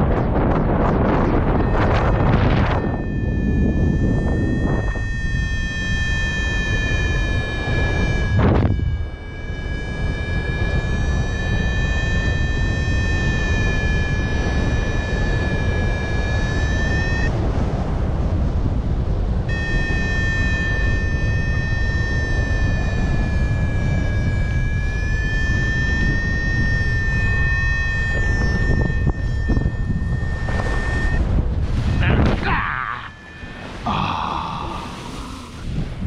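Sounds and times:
variometer high tone: 0.0s - 17.4s, 19.4s - 35.9s
wind on microphone: 0.0s - 36.0s.

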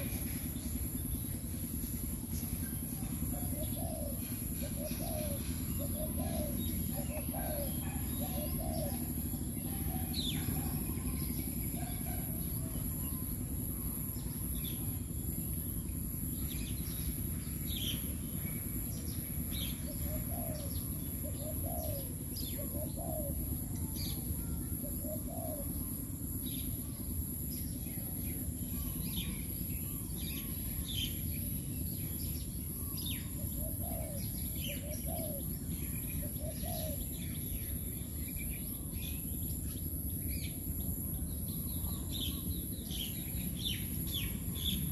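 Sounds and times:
small birds chirping: 0.0s - 44.9s
doves cooing: 2.8s - 14.6s, 19.7s - 26.4s, 32.8s - 37.5s.

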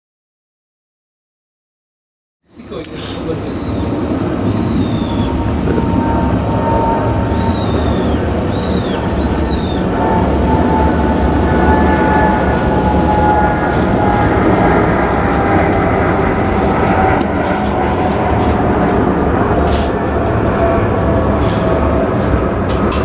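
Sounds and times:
bird calling: 2.5s - 11.1s
jet engines rumbling overhead: 2.5s - 23.0s.

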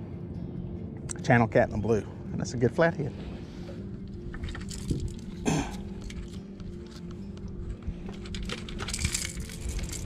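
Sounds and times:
light clicks of hooks: 4.3s - 10.0s.

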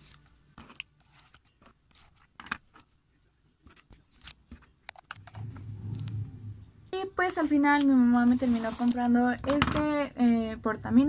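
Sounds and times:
plastic pens clicking and tapping: 3.6s - 5.3s, 8.8s - 10.2s.

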